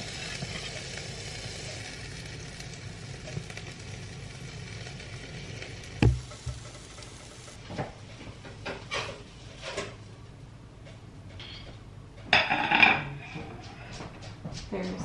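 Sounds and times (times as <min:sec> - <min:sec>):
food sizzling in a frying pan: 0:00.0 - 0:07.6
dull knock: 0:06.0 - 0:06.6.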